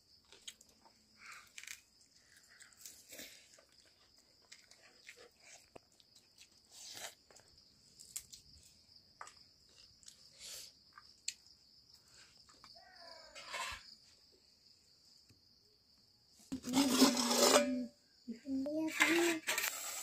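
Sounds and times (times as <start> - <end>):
steady high-pitched hiss: 10.2 - 12.9.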